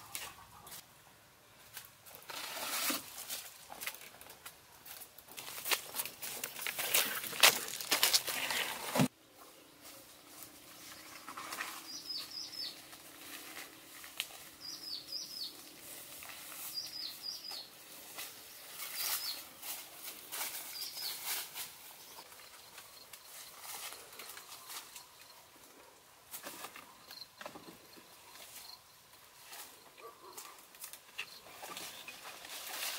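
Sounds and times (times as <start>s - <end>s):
footsteps crunching on dry leaves: 4.8s - 9.1s
bird chirping: 9.5s - 12.9s, 14.6s - 15.7s, 16.7s - 17.7s, 18.9s - 19.5s
steps rustling through grass: 15.4s - 22.2s.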